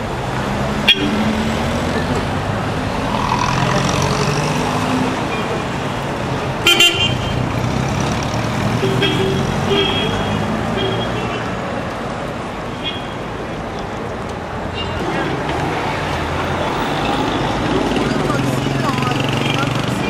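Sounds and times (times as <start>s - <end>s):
cars driving past: 0.0s - 20.0s
car horn toots: 0.9s - 1.2s, 6.6s - 7.4s, 8.8s - 11.4s.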